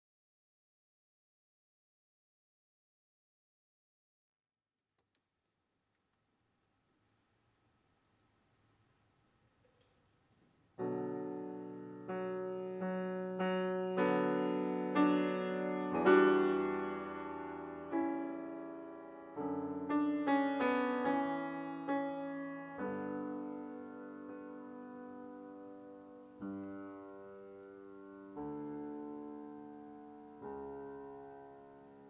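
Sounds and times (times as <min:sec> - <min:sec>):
piano playing slow chords: 0:10.8 - 0:32.0.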